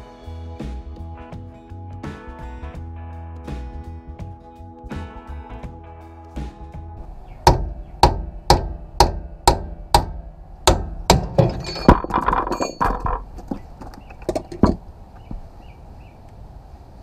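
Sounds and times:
metal clinks and ringing: 0:11.3 - 0:13.4.

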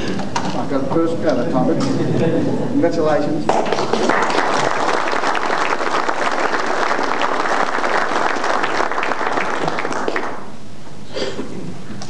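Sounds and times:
audience applauding: 0:03.5 - 0:10.6.

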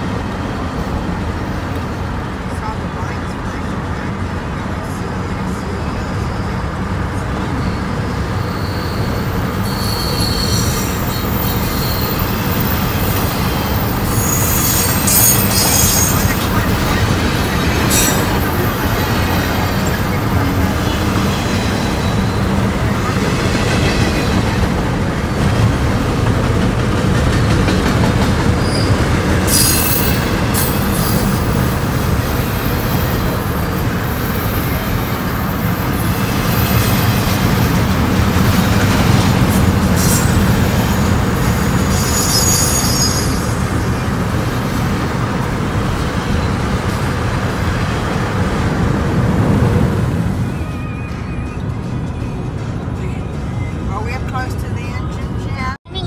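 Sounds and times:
freight train rumbling: 0:00.0 - 0:56.0
wheel squeals: 0:07.6 - 0:22.8, 0:28.6 - 0:31.6, 0:41.7 - 0:43.6.

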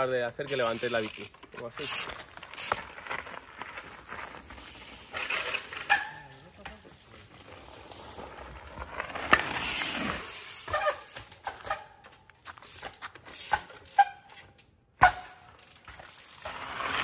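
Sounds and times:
bike clunking: 0:00.0 - 0:06.9, 0:10.5 - 0:17.0
bike squeaks and clicks: 0:00.4 - 0:03.0, 0:04.6 - 0:06.5, 0:09.6 - 0:17.0.

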